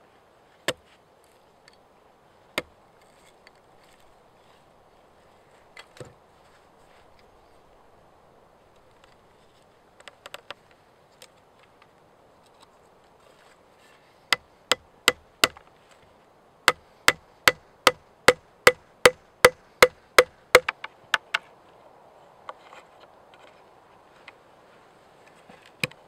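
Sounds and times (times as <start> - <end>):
hammer knocking wooden peg: 14.3 - 15.6, 16.7 - 21.4.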